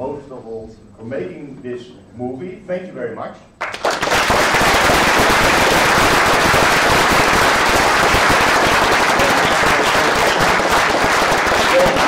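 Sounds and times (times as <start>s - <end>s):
audience applauding: 3.6s - 12.0s.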